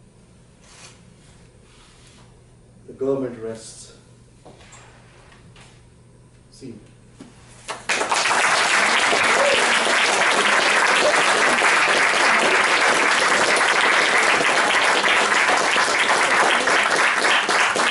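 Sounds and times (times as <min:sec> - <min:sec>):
audience applauding: 0:07.7 - 0:17.9.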